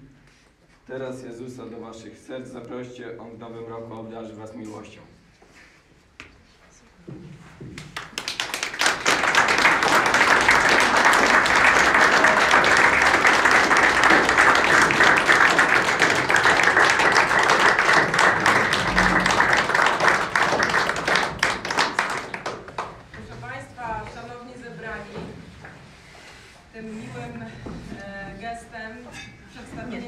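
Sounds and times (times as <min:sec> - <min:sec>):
audience applauding: 0:07.8 - 0:23.3.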